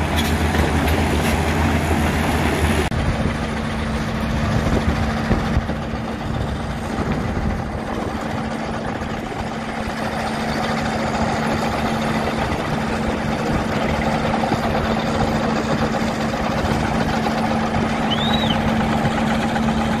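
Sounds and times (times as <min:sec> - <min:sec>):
high chirp: 0:18.0 - 0:18.7.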